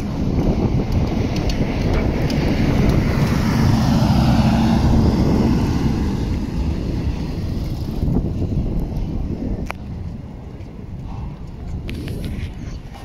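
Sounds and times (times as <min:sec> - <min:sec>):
tram drive humming: 0:00.0 - 0:11.9
tram passing: 0:01.6 - 0:08.5.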